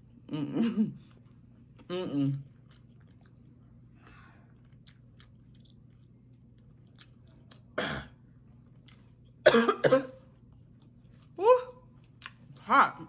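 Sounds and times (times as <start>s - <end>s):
faint chewing clicks: 2.6s - 7.8s
woman coughing: 7.8s - 8.2s, 9.4s - 10.2s.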